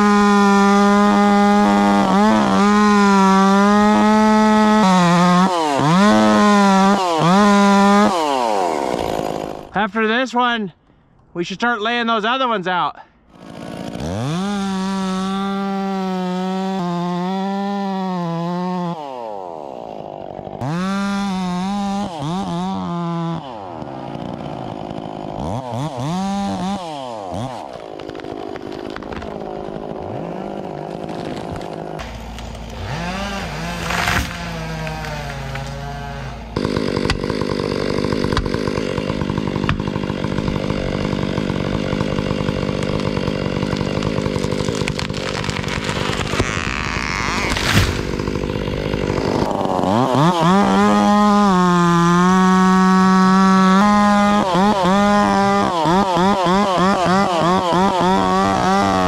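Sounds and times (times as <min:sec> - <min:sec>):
chainsaw cutting at full throttle: 0:00.0 - 0:09.8, 0:13.3 - 0:59.0
sharp crack: 0:31.1 - 0:36.0, 0:43.7 - 0:50.0.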